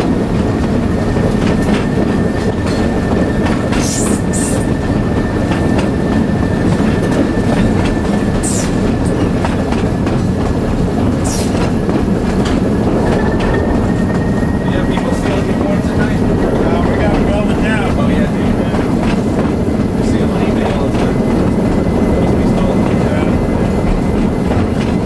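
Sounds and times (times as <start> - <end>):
locomotive engine and wheels rumble: 0.0 - 25.0
wind buffeting microphone: 0.0 - 25.0
high squeals: 12.7 - 19.0.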